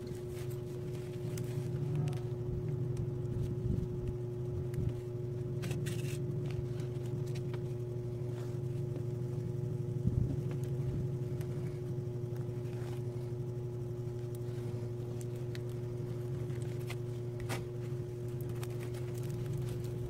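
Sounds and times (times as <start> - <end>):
plastic rustles and scrapes: 0.0 - 2.6, 3.2 - 9.1, 14.0 - 20.0
low machine hum: 0.0 - 20.0.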